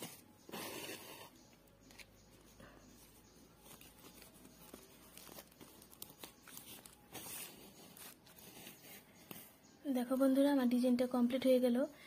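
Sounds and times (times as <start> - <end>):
needle and yarn rustling through sack: 3.0 - 10.2.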